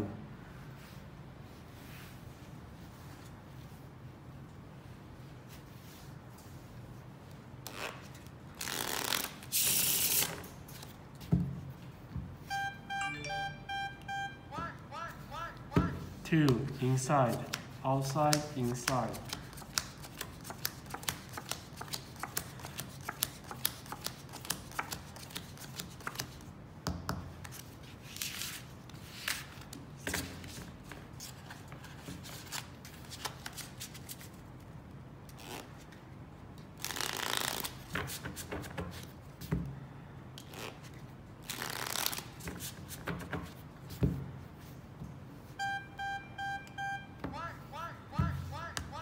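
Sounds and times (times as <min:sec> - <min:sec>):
playing cards snapping and flicking: 0:17.3 - 0:26.4.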